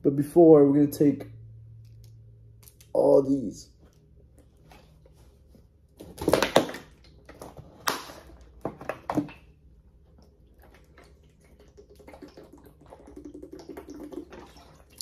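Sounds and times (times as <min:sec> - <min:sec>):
person gulping water: 0:10.2 - 0:15.0
plastic jug crackling: 0:10.5 - 0:15.0.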